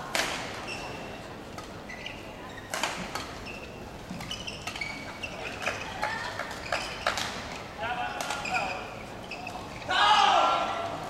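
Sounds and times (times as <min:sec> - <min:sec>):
shoes squeaking on court: 0:00.6 - 0:07.6, 0:08.3 - 0:09.9.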